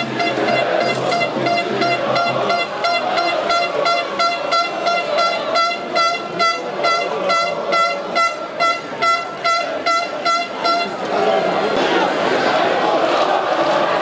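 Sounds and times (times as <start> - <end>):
horn tooting: 0.0 - 11.4
murmur of crowd: 0.0 - 14.0.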